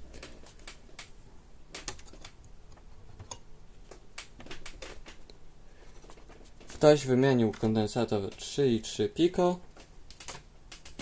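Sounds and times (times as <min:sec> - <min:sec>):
light clicks and taps: 0:06.0 - 0:08.6.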